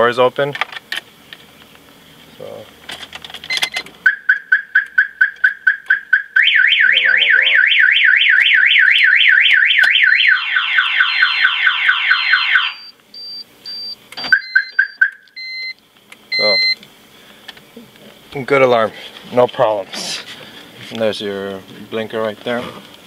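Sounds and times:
car alarm siren: 0:04.0 - 0:15.7
faint high beeps: 0:12.7 - 0:16.8.

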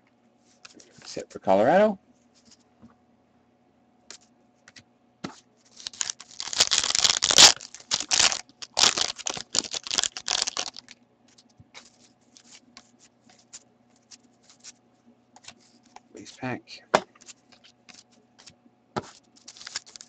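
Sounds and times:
wrapper tearing and crinkling: 0:05.7 - 0:11.0, 0:19.2 - 0:20.0.

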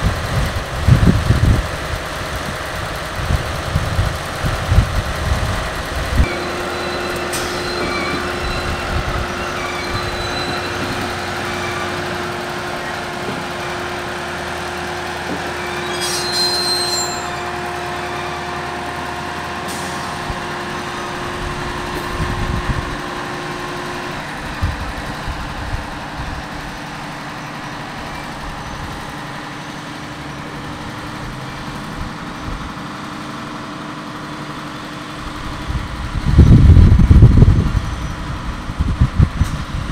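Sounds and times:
diesel locomotive engine drone: 0:00.0 - 0:39.9
high-pitched squeal: 0:06.2 - 0:24.4.

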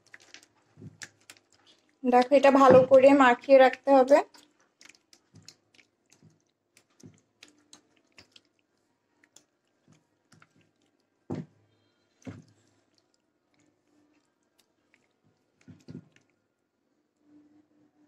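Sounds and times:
hand squelching chicken in marinade: 0:04.2 - 0:16.4.

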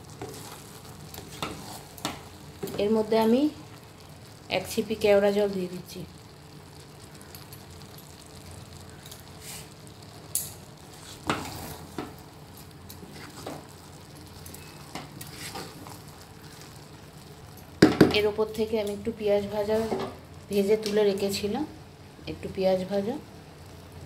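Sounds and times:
spatula stirring rice in pot: 0:00.0 - 0:03.1, 0:08.9 - 0:18.1
spatula scraping and knocking pot: 0:00.2 - 0:02.8, 0:11.1 - 0:12.1.

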